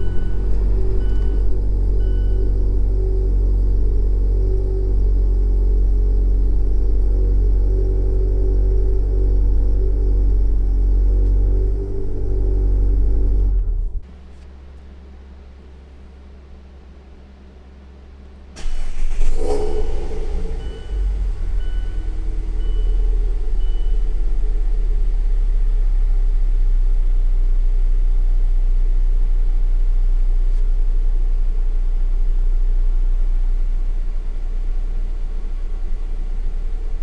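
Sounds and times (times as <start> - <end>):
car engine starting and idling: 0.0 - 29.1.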